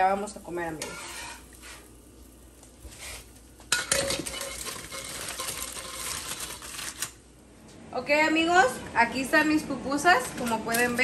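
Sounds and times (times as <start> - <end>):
metal spatula on griddle: 0.6 - 1.9, 3.0 - 7.1
aluminium foil crinkling: 2.6 - 7.2.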